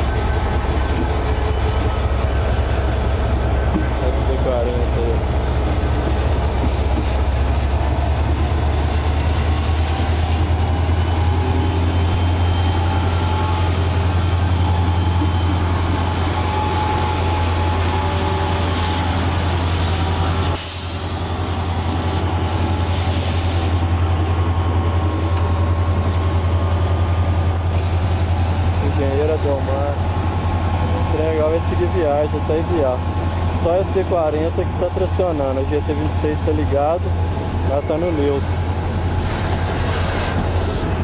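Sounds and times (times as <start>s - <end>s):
locomotive engine drone: 0.0s - 41.0s
rail noise: 0.0s - 41.0s.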